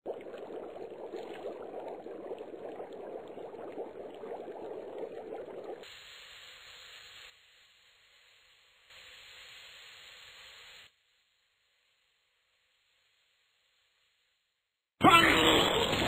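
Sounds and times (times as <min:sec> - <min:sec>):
water boiling in a saucepan: 0:00.1 - 0:14.2
steam hissing: 0:08.9 - 0:10.9.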